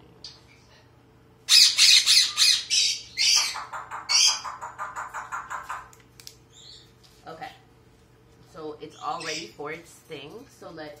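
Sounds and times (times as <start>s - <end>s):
parrot harsh calls: 1.4s - 5.9s.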